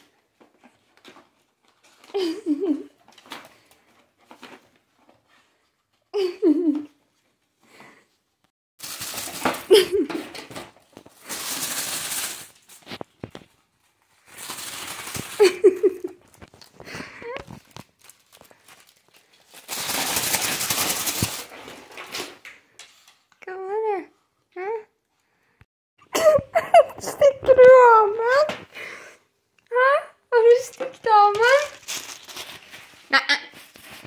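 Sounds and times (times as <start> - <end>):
plastic packaging crinkling: 8.8 - 22.4, 31.0 - 34.0.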